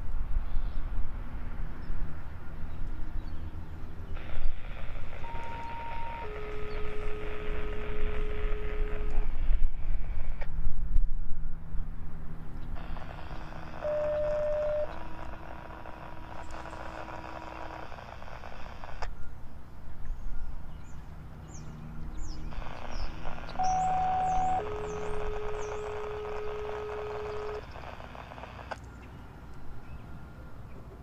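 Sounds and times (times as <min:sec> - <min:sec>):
mechanical traffic hum: 0:00.0 - 0:31.0
small birds chirping: 0:02.7 - 0:08.3, 0:12.6 - 0:30.1
steady held tones: 0:04.2 - 0:09.2, 0:12.8 - 0:19.0, 0:22.5 - 0:28.8.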